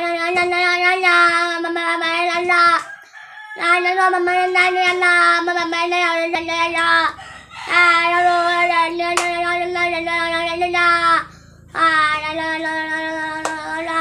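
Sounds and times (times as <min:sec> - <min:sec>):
boy singing long notes: 0:03.6 - 0:14.0
breath: 0:11.3 - 0:11.7.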